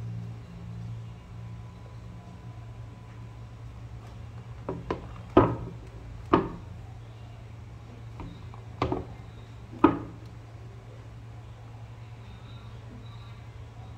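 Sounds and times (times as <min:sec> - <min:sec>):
shoes knocking on wooden table: 0:04.6 - 0:06.7, 0:08.2 - 0:09.2, 0:09.8 - 0:10.2.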